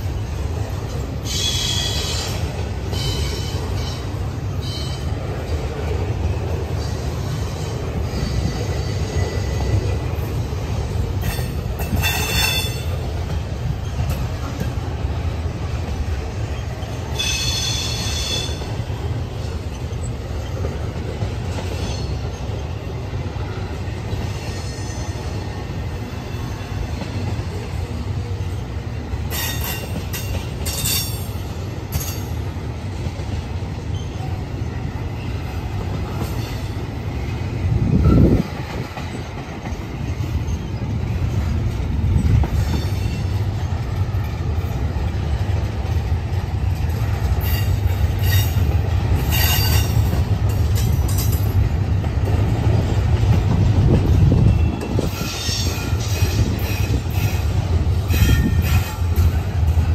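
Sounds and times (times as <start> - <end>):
freight train rumbling past: 0.0 - 59.9
wheel screeching on rail: 0.0 - 59.9.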